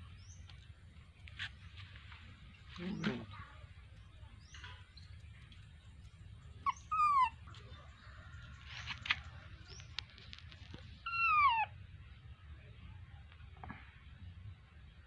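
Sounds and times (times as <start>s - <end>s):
baby monkey crying: 6.6s - 7.5s, 11.0s - 11.8s.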